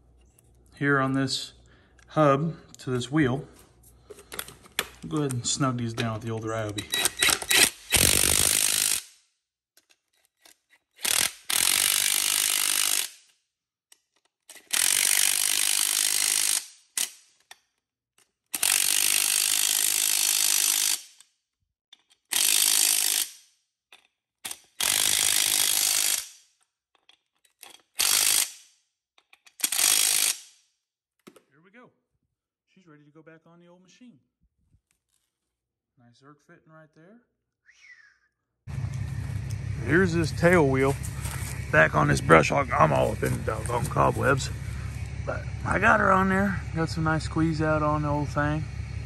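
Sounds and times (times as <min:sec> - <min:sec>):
impact driver running nuts: 0:06.0 - 0:09.1, 0:10.4 - 0:13.2, 0:14.5 - 0:17.1, 0:18.5 - 0:21.1, 0:22.0 - 0:23.4, 0:24.5 - 0:26.3, 0:27.6 - 0:28.6, 0:29.3 - 0:30.4.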